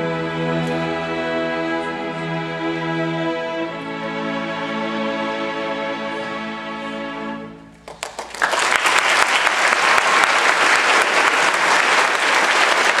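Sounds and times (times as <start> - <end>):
audience applause: 7.8 - 13.0.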